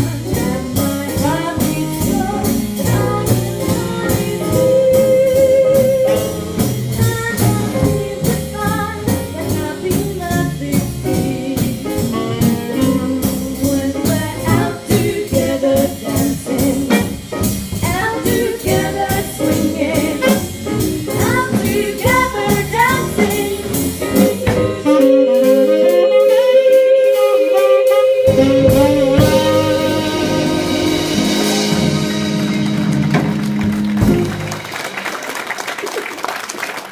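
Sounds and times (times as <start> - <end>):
women singing: 0.0 - 6.4, 7.0 - 17.2, 17.8 - 32.3
saxophone: 0.0 - 9.6, 17.8 - 34.7
drums: 0.0 - 36.2
live swing band: 0.0 - 36.9.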